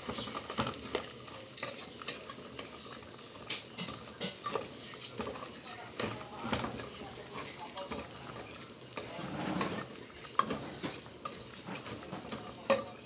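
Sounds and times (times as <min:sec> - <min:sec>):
rice sizzling: 0:00.0 - 0:13.0
metal spoon scraping a pot: 0:08.4 - 0:12.9.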